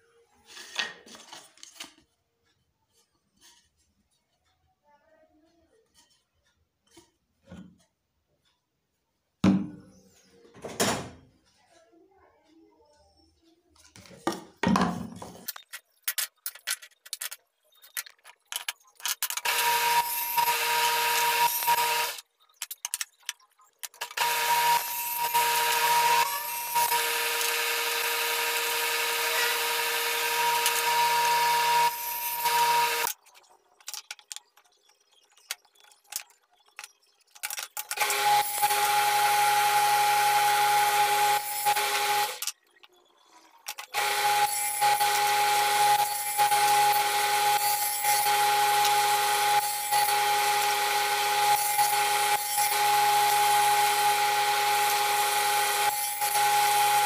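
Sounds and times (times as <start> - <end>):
wood pieces knocking and clattering: 14.0 - 19.5, 22.5 - 24.2, 33.1 - 38.0
table saw cutting wood: 19.4 - 22.2, 24.0 - 33.1, 37.9 - 42.5, 43.8 - 57.0.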